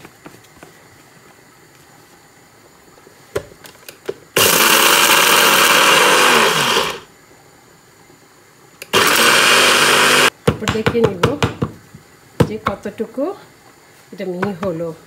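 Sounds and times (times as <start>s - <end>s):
blender grinding spices: 4.4s - 7.1s, 8.9s - 10.3s.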